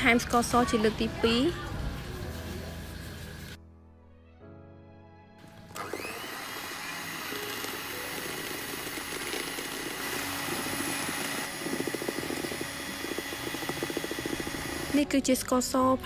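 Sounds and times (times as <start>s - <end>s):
electric hand mixer whirring: 5.4s - 15.1s
mixer beaters rattling in bowl: 5.7s - 15.1s.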